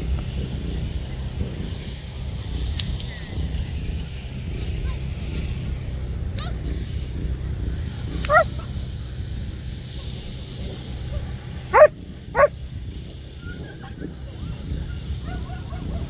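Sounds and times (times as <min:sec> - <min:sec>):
faint dog yips: 0:08.3 - 0:08.7, 0:11.8 - 0:12.5
dog barking: 0:08.3 - 0:08.8, 0:11.1 - 0:12.6, 0:14.8 - 0:16.0.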